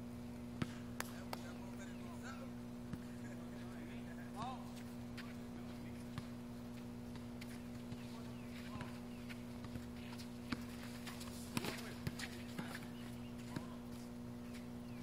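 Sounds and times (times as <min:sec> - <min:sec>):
steady low hum: 0:00.0 - 0:15.0
basketball bouncing on a court: 0:06.1 - 0:13.8.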